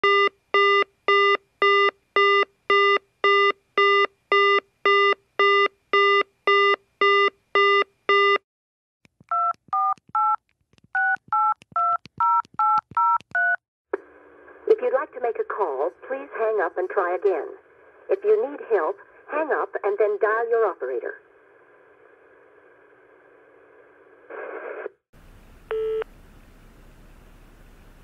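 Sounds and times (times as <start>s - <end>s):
touch-tone keypad tones: 9.3s - 10.4s, 11.0s - 13.6s.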